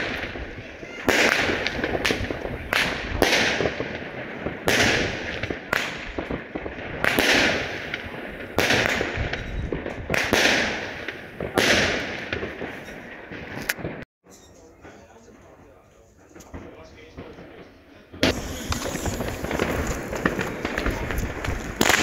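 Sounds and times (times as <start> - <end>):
firework cake shots banging: 18.2 - 22.0.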